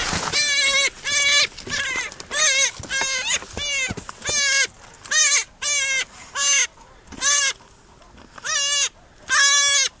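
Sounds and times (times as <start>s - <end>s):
dog yelping: 8.4s - 10.0s.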